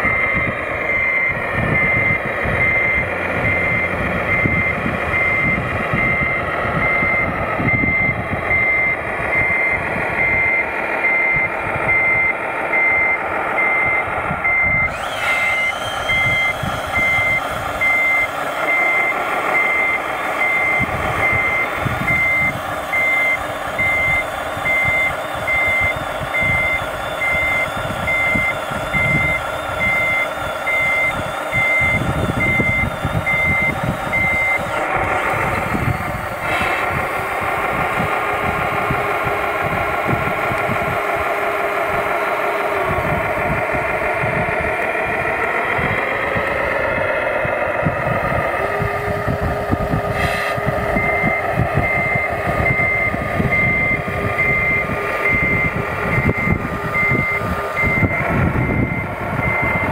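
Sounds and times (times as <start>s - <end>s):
high reversing beeps: 0.0s - 37.0s, 50.2s - 59.9s
simulated diesel engine: 0.0s - 59.9s
thin whine: 0.0s - 59.9s.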